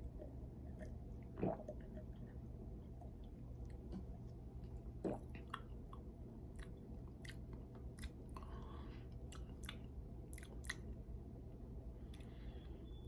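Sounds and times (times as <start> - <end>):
low steady hum: 0.0 - 13.0
lip smacks and mouth clicks: 4.6 - 11.0.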